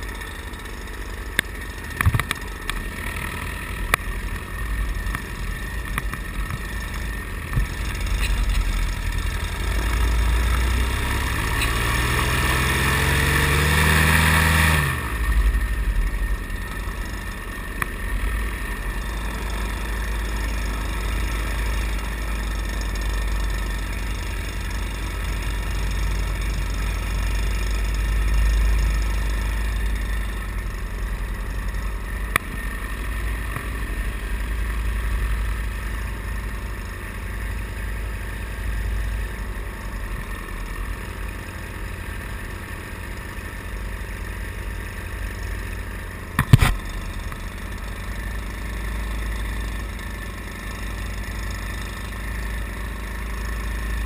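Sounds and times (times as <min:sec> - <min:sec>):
sharp click: 0:46.4 - 0:47.4.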